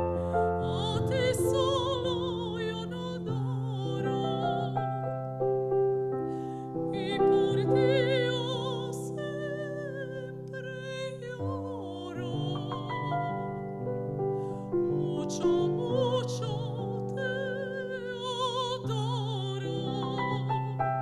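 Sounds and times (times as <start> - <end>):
digital piano chords: 0.0 - 21.0
woman singing operatically: 0.2 - 4.8, 6.9 - 13.6, 14.8 - 20.8.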